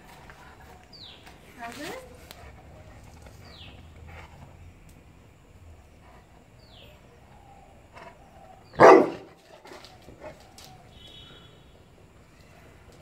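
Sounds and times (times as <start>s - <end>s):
dog barking: 8.8s - 9.4s.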